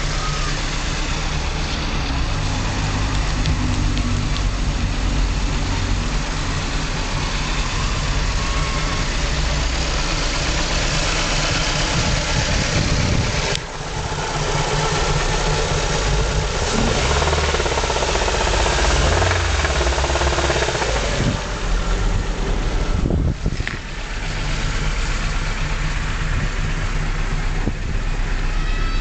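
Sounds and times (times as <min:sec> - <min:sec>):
rhythmic engine knock: 0:00.0 - 0:22.5
car engine idling: 0:00.0 - 0:29.0.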